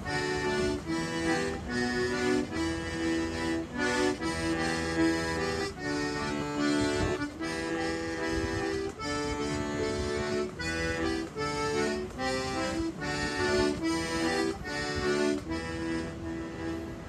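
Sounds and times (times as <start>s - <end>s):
button accordion playing: 0.0s - 17.0s.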